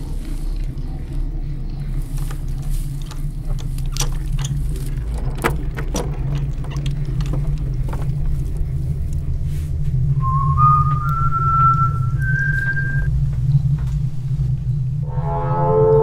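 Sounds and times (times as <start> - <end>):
steady low drone: 0.0 - 16.0
chain clinking: 1.9 - 9.2
key turning in padlock: 2.2 - 8.6.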